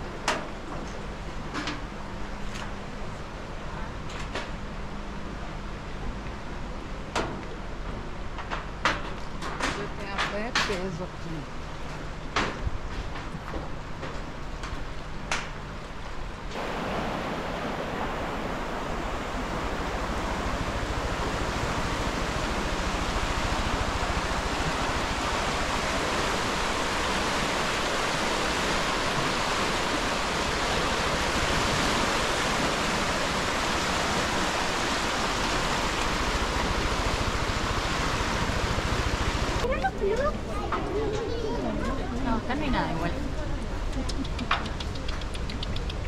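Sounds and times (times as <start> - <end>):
river rushing through rapids: 16.5 - 39.8.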